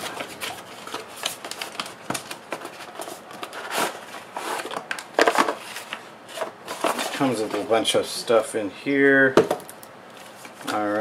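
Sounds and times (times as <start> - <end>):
cardboard rustling and scraping: 0.0 - 8.0.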